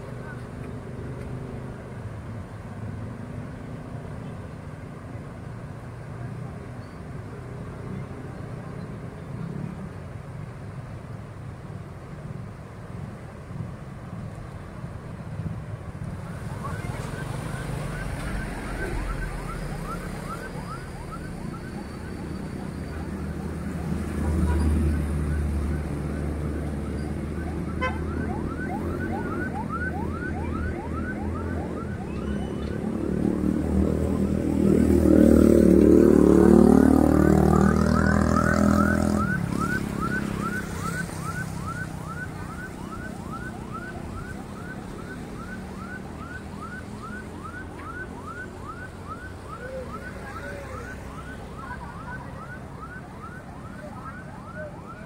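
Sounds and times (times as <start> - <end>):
street traffic: 0.0 - 55.0
vehicle passing close by: 16.3 - 53.8.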